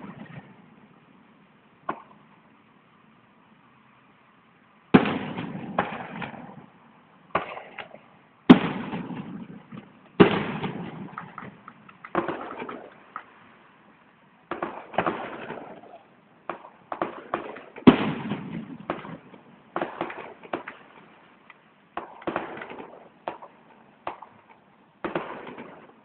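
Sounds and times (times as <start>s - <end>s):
small firework cracks: 1.8s - 2.2s, 5.0s - 6.7s, 7.3s - 13.6s, 14.5s - 26.0s
firework shells bursting: 7.4s - 13.6s.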